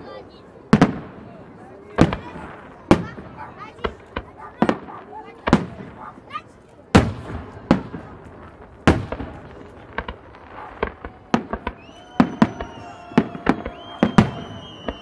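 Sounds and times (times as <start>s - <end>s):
firework crackling: 0.0s - 15.0s
firework shells bursting: 7.0s - 15.0s
high steady whistle: 11.7s - 15.0s.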